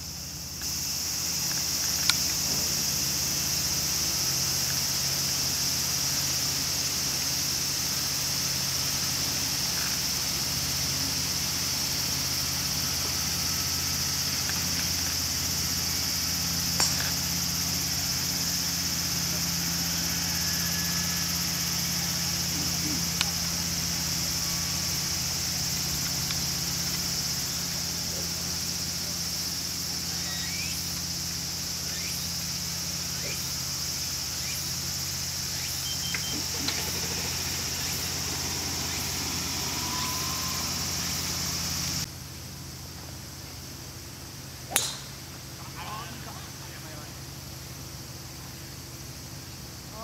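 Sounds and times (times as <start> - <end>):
mechanical hum: 0.0 - 50.0
high-pitched buzz: 2.2 - 42.1
sharp crack: 44.7 - 45.3.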